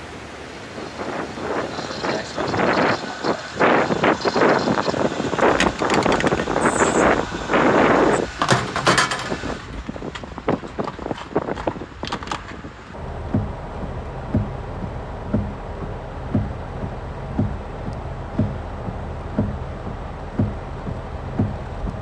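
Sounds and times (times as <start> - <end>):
low car rumble inside cabin: 0.0 - 22.0
wind buffeting microphone: 0.0 - 22.0
sharp knocks: 5.4 - 7.1, 8.2 - 13.5.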